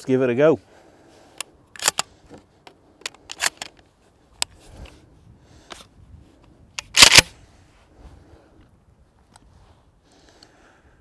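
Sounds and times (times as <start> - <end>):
shotgun clicks and clacks: 1.8 - 2.1, 3.0 - 3.8, 6.8 - 7.3.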